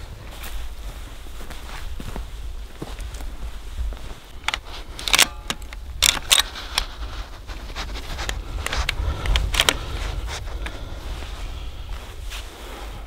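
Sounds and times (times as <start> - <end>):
rifle metallic clicks and clacks: 4.4 - 7.0, 7.9 - 9.8.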